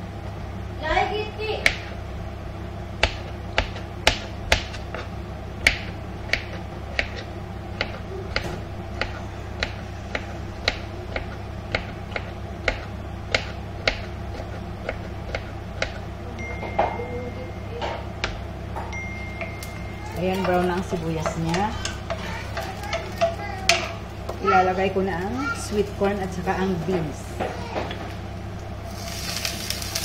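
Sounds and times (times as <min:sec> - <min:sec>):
steady low hum: 0:00.0 - 0:30.0
onions frying in crackling oil: 0:28.0 - 0:30.0.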